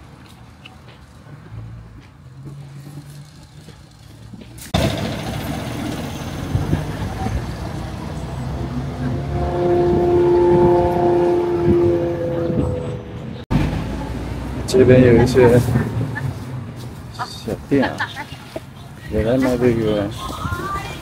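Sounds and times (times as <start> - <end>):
street traffic noise: 0.0 - 21.0
long steady horn-like tone: 8.8 - 13.2.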